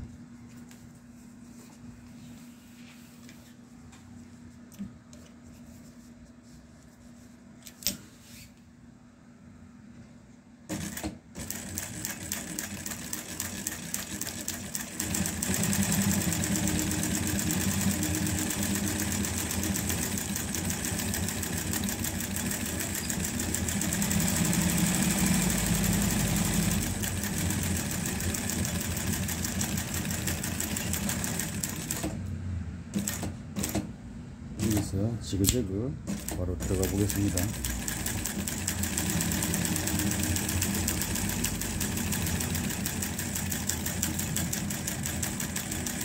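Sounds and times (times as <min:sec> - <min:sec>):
sewing machine stitching: 0:10.7 - 0:32.2, 0:36.1 - 0:46.0.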